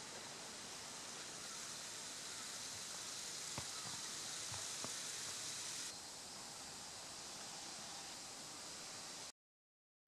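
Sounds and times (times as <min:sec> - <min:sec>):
faint outdoor ambient hiss: 0:00.0 - 0:09.4.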